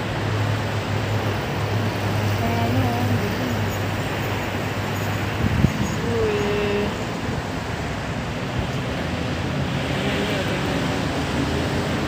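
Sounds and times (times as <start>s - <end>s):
cars passing on busy road: 0.0s - 12.0s
wind on microphone: 4.9s - 7.6s.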